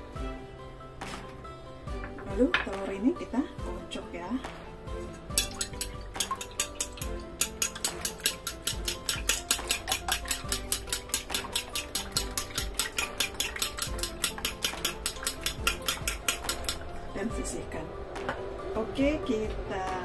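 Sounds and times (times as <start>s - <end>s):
fork beating eggs in bowl: 5.4s - 16.9s.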